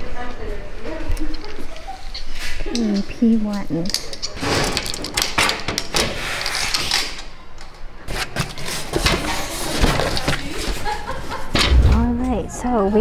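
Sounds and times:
key unlocking metal locker: 2.8 - 7.3.

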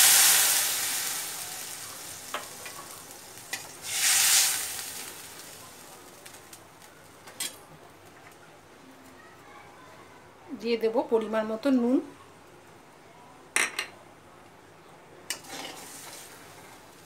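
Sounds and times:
water sizzling in hot oil: 0.0 - 7.5, 15.3 - 17.0.

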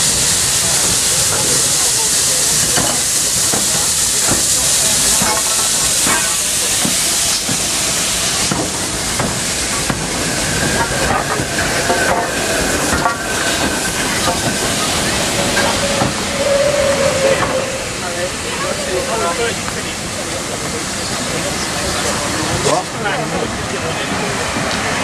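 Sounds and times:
steam hissing: 0.0 - 25.0
locomotive wheels clanking: 0.6 - 20.7
thin high squeal: 15.5 - 19.2.

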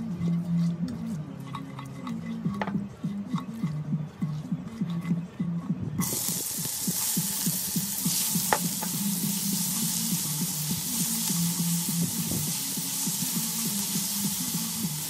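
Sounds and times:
food sizzling in hot oil: 6.0 - 15.0.

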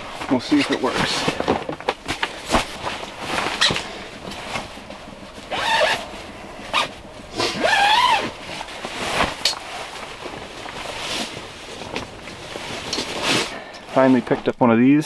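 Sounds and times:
nylon fabric rustling: 0.0 - 14.5
sleeping bag zipper: 5.5 - 6.0, 6.7 - 8.4.

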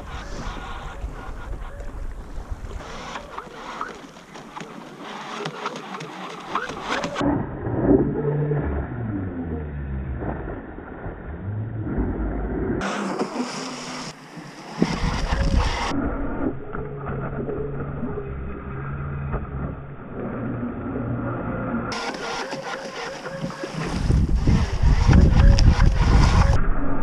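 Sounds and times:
water spray hissing: 12.8 - 15.9
toy jet boat motor whining: 21.9 - 26.6.

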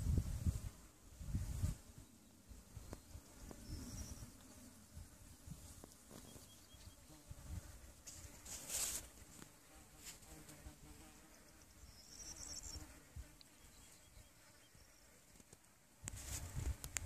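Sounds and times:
wind rumbling on microphone: 0.0 - 2.1, 16.0 - 17.0
high thin insect buzzing: 0.0 - 17.0.

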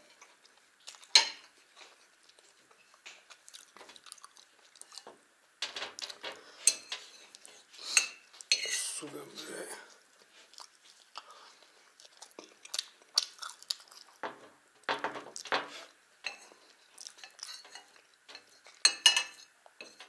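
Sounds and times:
chewing: 0.1 - 5.1, 9.9 - 14.3, 15.3 - 18.8
fork clinking on ceramic plate: 6.6 - 7.1, 17.2 - 20.0.

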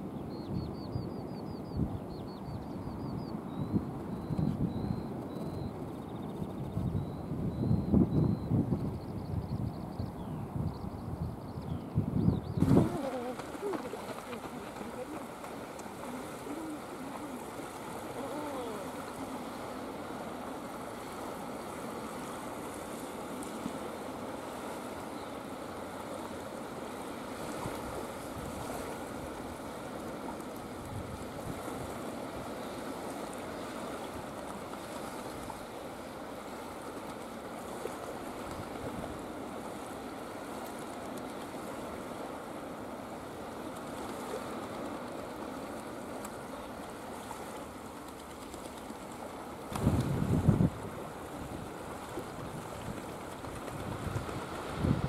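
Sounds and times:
wind: 0.0 - 55.0
choppy water washing: 12.5 - 55.0
eiders cooing: 12.7 - 19.6.

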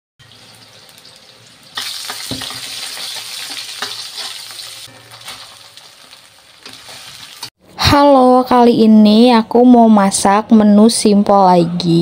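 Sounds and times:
oil sizzling in a wok: 0.2 - 7.6
spatula scraping a wok: 2.2 - 7.5.

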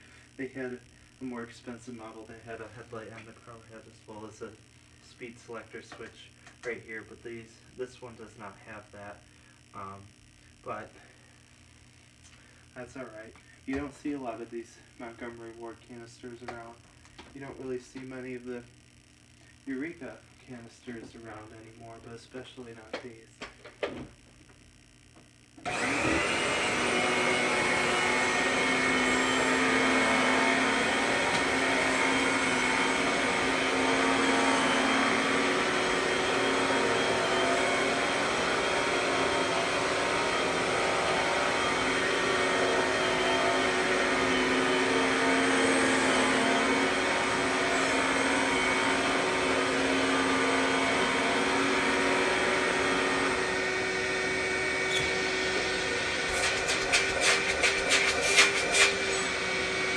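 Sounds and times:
vacuum cleaner whining: 0.0 - 10.1, 12.3 - 18.6, 25.6 - 59.9
vacuum nozzle pushed over carpet: 25.7 - 59.9.

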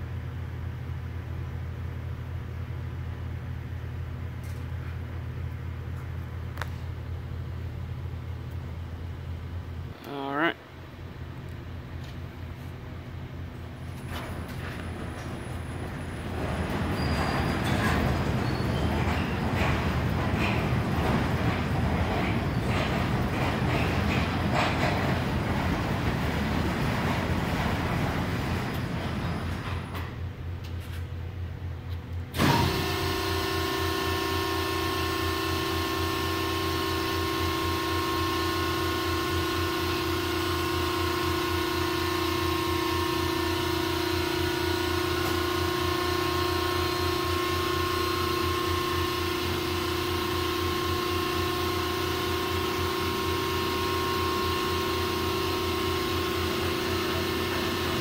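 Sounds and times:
constant whining tones: 10.0 - 30.8
rushing mechanical noise: 13.6 - 30.3
motor hum with pulsing drone: 32.1 - 58.0.

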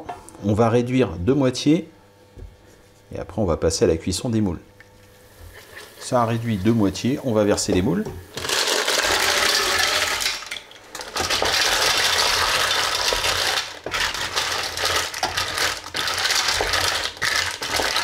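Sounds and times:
mussel shells clattering in a pot: 8.3 - 18.0.

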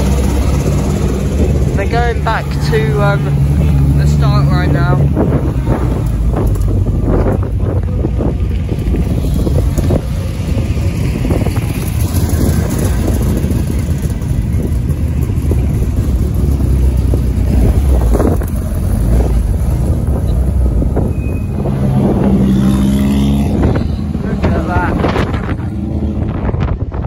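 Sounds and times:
racing car engine running: 0.0 - 27.0
wind rumble on microphone: 0.0 - 27.0.

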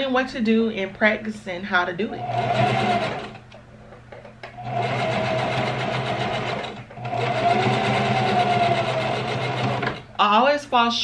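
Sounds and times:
sewing machine stitching: 2.2 - 3.4, 4.6 - 10.0.

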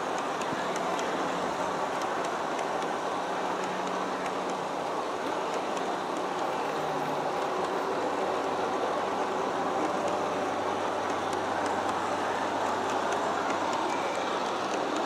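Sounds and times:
wheels rumbling on rail: 0.0 - 15.0.

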